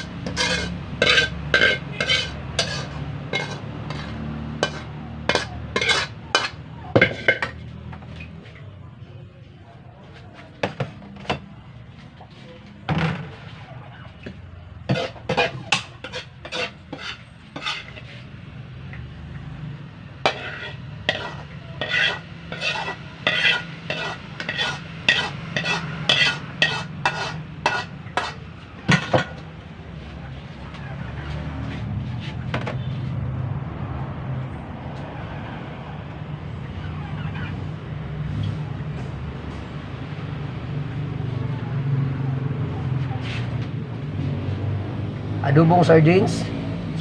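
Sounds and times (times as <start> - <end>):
metal utensil scraping frying pan: 0.0 - 8.3, 14.9 - 18.3, 20.2 - 29.4.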